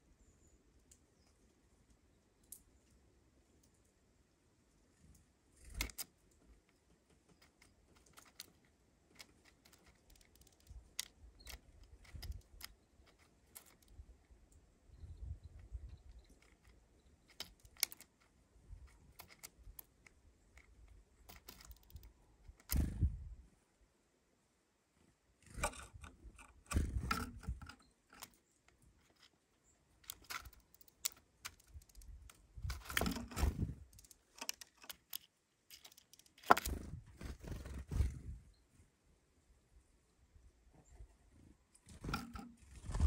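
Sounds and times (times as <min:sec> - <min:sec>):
bird picking at seeds: 0:05.6 - 0:14.6, 0:15.5 - 0:23.1, 0:25.4 - 0:38.2, 0:41.8 - 0:43.0
claws on plastic rim: 0:07.3 - 0:14.0, 0:16.4 - 0:22.9, 0:25.4 - 0:29.3, 0:30.0 - 0:36.9, 0:41.9 - 0:42.7.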